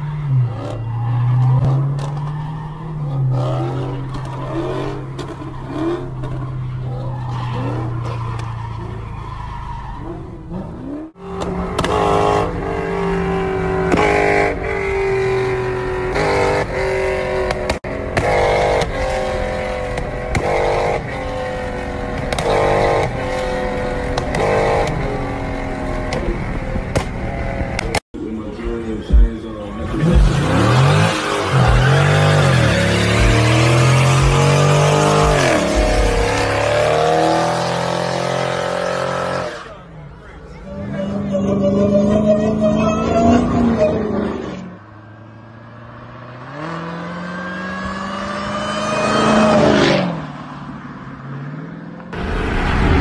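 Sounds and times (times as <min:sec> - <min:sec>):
car engine revving: 0:00.0 - 0:50.4.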